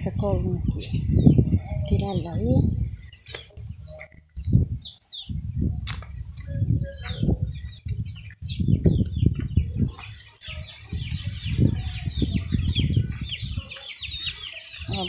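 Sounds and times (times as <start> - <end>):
wind buffeting microphone: 0.0 - 15.0
chicks peeping: 0.2 - 15.0
bird chirps: 0.9 - 5.4, 6.4 - 15.0.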